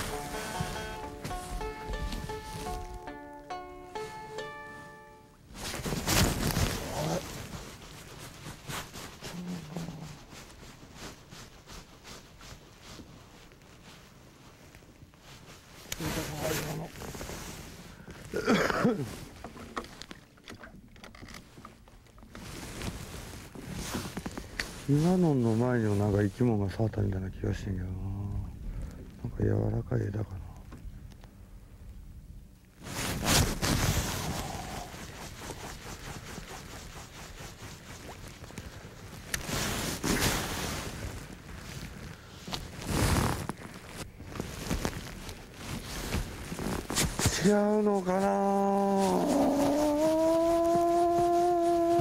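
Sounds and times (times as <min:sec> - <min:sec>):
wind and water hiss: 0:00.0 - 0:03.4, 0:28.4 - 0:42.9.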